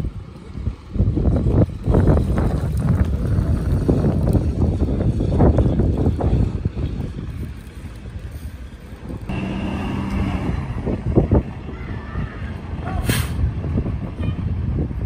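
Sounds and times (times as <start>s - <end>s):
diesel truck engine: 6.8s - 14.9s
air brake hiss: 12.9s - 13.4s.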